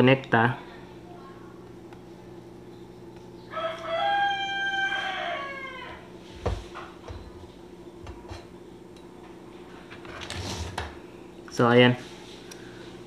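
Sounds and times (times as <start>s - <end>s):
steady low hum: 0.0s - 13.0s
rooster crowing: 3.5s - 6.2s.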